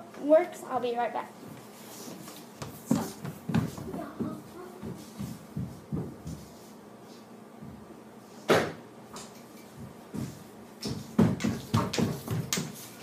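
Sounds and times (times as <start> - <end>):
thumping footsteps: 1.5 - 6.7, 9.7 - 13.0.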